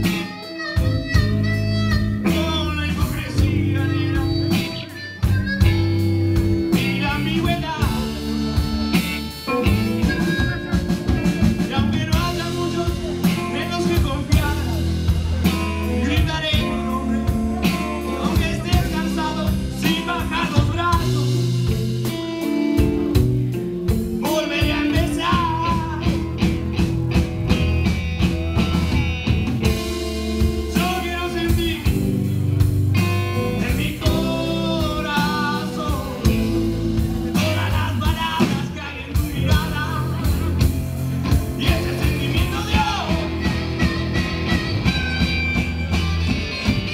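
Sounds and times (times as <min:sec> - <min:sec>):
drum kit: 0:00.0 - 0:46.9
electric bass: 0:00.0 - 0:46.9
electric guitars: 0:00.0 - 0:46.9.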